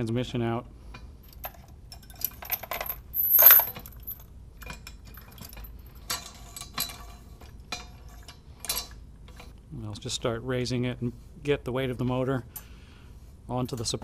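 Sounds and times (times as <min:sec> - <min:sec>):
metal chain clinking and rattling: 0:01.2 - 0:09.4.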